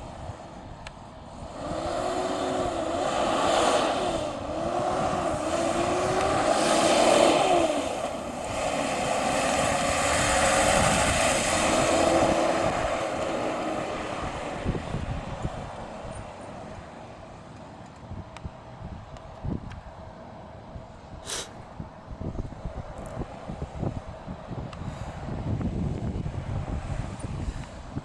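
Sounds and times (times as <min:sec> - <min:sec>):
truck engine passing slowly: 0:00.0 - 0:19.1.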